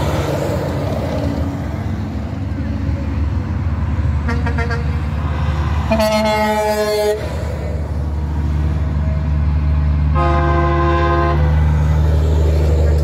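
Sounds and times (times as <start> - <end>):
diesel truck engines rumbling: 0.0 - 13.0
truck air horn honking: 4.2 - 5.0, 5.8 - 7.3, 10.1 - 11.6.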